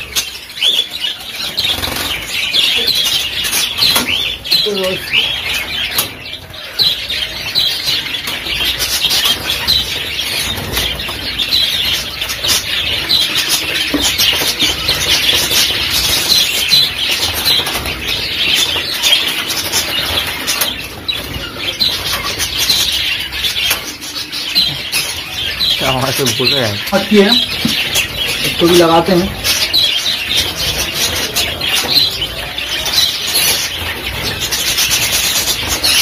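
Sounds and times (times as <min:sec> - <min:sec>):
budgerigars chirping: 0:00.0 - 0:36.0
wings flapping: 0:07.8 - 0:24.1.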